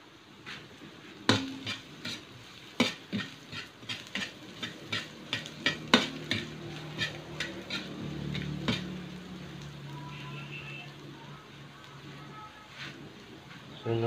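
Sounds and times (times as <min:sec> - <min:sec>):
light sizzle of frying: 0:00.0 - 0:14.0
metal ladle scraping a wok: 0:01.3 - 0:09.2.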